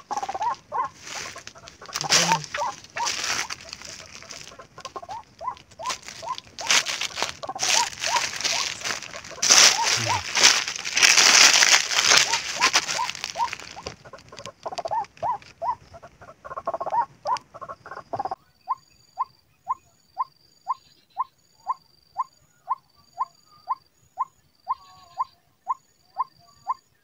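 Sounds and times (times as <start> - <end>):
footsteps in dry leaves: 0.0 - 14.4.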